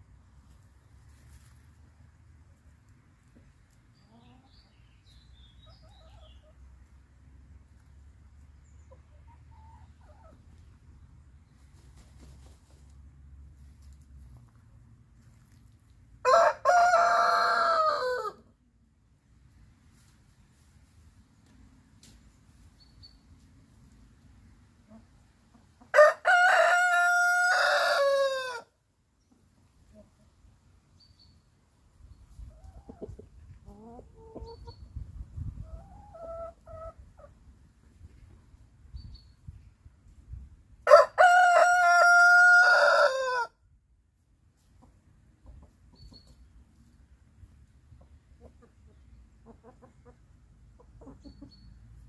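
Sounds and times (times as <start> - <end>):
chicken clucking: 2.5 - 13.0, 20.0 - 28.0, 29.2 - 30.5, 32.3 - 38.4, 44.6 - 47.0, 47.7 - 52.0
rooster crowing: 16.2 - 18.4, 26.0 - 28.7, 40.9 - 43.5.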